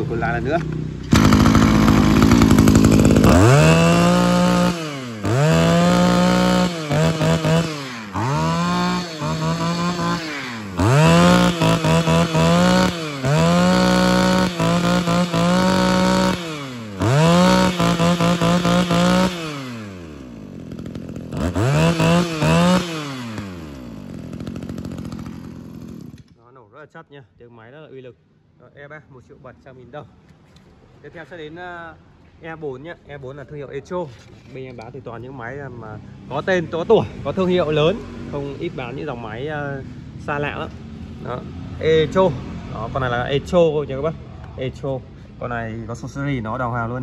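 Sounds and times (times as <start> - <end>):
brush cutter engine revving: 0.0 - 26.4.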